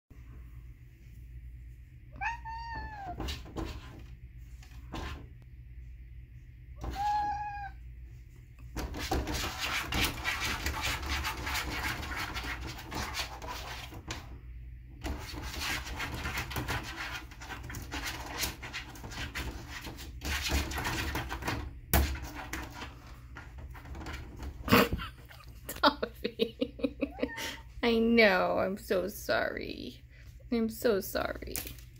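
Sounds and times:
cat meowing: 0:02.1 - 0:03.2, 0:06.8 - 0:07.8, 0:27.1 - 0:27.6.

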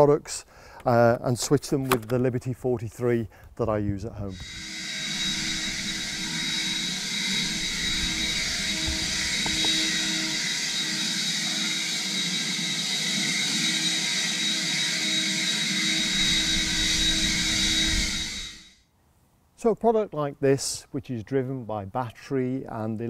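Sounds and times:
leaf blower running: 0:04.3 - 0:18.8.

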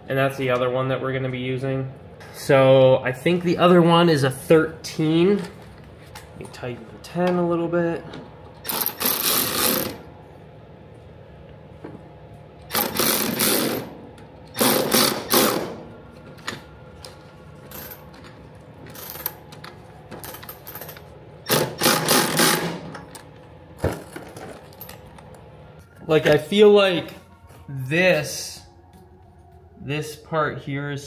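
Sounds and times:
power tool bursts: 0:08.7 - 0:10.0, 0:12.7 - 0:15.8, 0:21.5 - 0:22.9.

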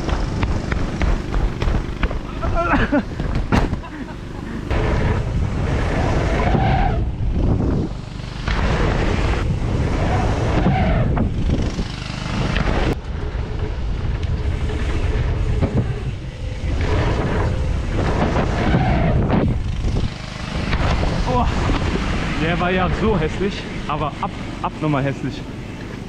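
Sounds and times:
wind rushing over microphone: 0:04.7 - 0:24.2.

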